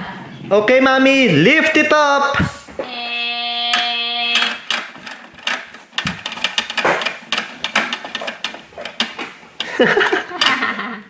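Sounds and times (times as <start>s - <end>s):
hard plastic clicking and clattering: 3.7s - 10.8s.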